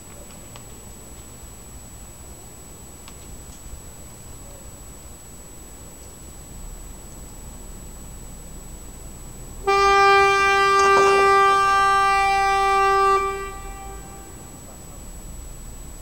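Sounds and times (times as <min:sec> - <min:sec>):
warning horn blast: 0:09.6 - 0:15.0.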